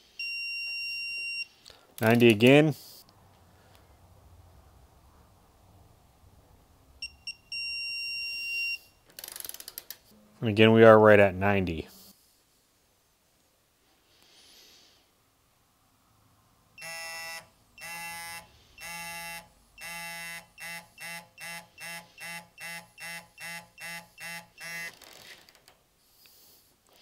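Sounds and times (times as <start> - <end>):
torque wrench beeping: 16.8 - 25.0.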